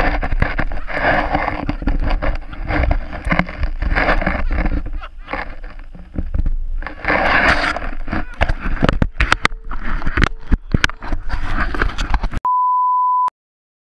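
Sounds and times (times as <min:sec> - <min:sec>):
wind rushing on camera microphone: 0:00.0 - 0:12.4
steady beep: 0:12.4 - 0:13.3.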